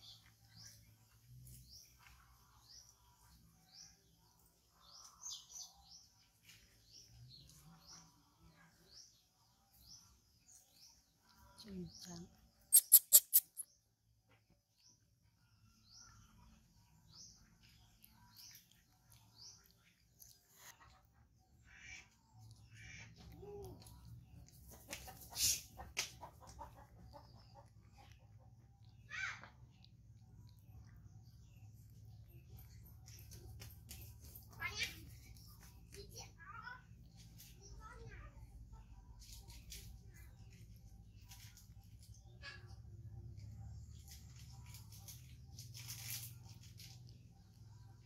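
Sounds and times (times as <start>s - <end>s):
small bird chirping: 0.0s - 48.0s
monkey crunching snack: 12.7s - 13.7s, 17.6s - 21.0s
chickens clucking: 24.2s - 28.6s.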